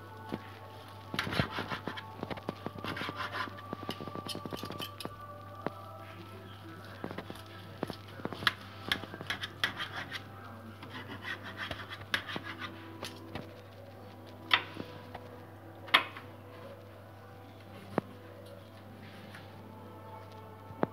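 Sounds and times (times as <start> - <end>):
fork and knife scraping tray: 8.9 - 10.2.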